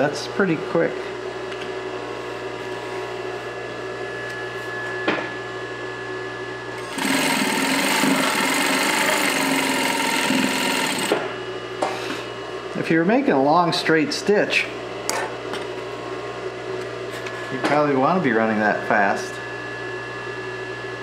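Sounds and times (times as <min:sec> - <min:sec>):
sewing machine sewing fast: 0:06.8 - 0:11.2
sewing machine motor humming: 0:06.8 - 0:11.3.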